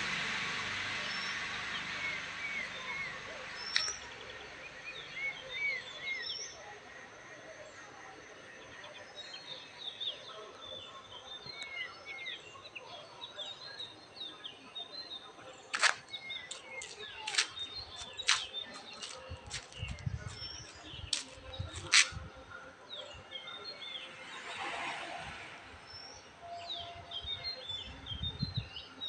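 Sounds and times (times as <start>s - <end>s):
small birds chirping: 1.0s - 6.8s, 8.6s - 24.1s.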